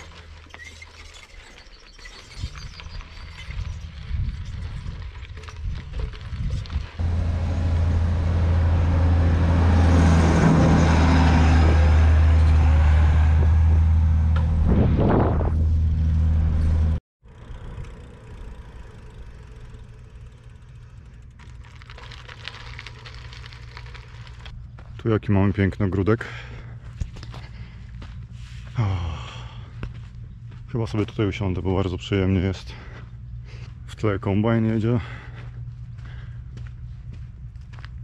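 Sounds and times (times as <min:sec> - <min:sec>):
combine harvester engine passing: 0:07.0 - 0:21.9.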